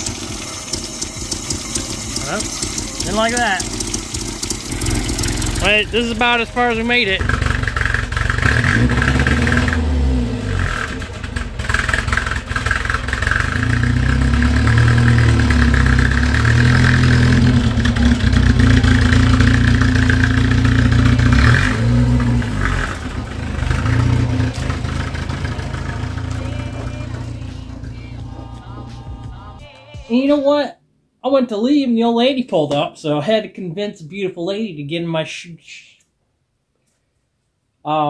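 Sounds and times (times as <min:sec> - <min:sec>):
car engine running: 0:00.0 - 0:29.6.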